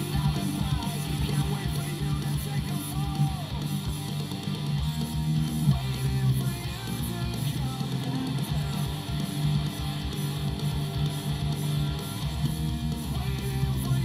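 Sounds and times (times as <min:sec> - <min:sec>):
bass guitar: 0:00.0 - 0:14.0
driving rock drums: 0:00.0 - 0:14.0
electric guitar riff: 0:00.0 - 0:14.0.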